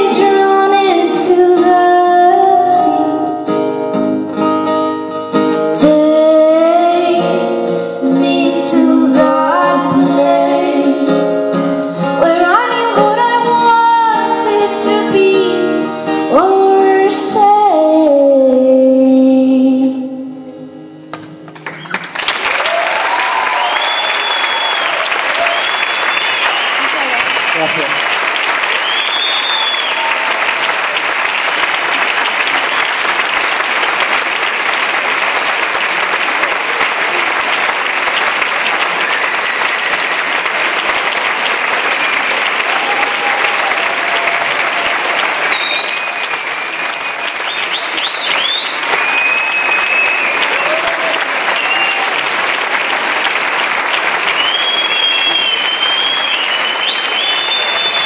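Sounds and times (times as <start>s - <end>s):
audience applauding: 21.5s - 58.0s
high whistles: 23.5s - 27.6s, 28.7s - 30.2s, 45.5s - 50.8s, 51.5s - 52.2s, 54.3s - 58.0s.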